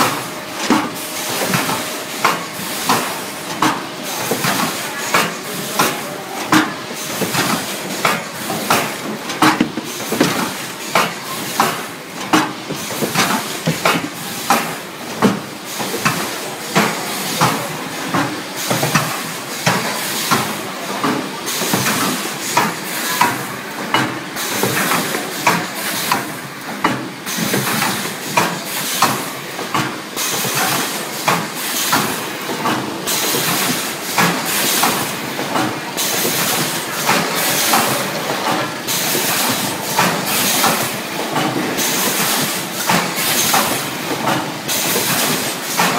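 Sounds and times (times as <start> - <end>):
machine clattering: 6.5 - 15.3.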